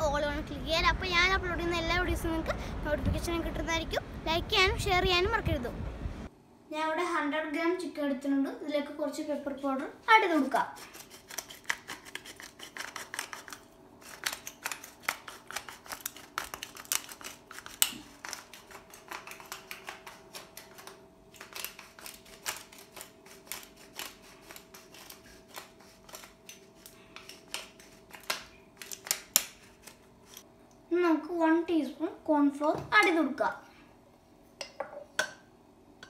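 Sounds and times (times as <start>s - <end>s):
pepper mill grinding: 10.8s - 30.4s.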